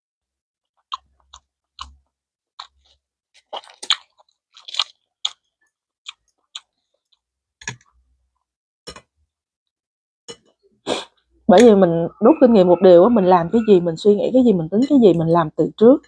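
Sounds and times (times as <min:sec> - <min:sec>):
crisp crunching: 0:02.6 - 0:05.4.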